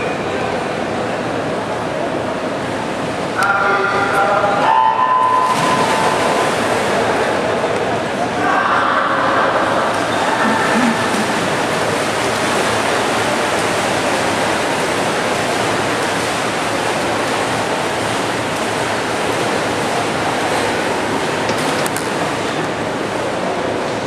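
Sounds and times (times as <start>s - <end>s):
swimmers splashing in echoing pool: 0.0s - 24.0s.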